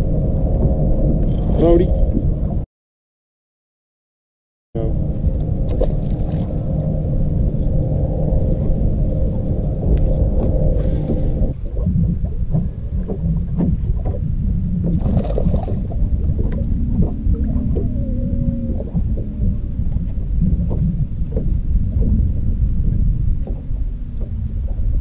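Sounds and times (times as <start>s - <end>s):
low rumble of wind and water: 0.0s - 2.7s, 4.8s - 25.0s
faint wavering whine: 4.8s - 25.0s
water slapping boat hull: 5.0s - 25.0s.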